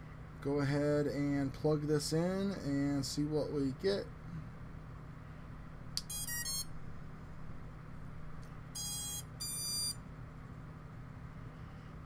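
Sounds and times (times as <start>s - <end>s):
electronic beeping tones: 6.1s - 6.7s, 8.8s - 10.0s.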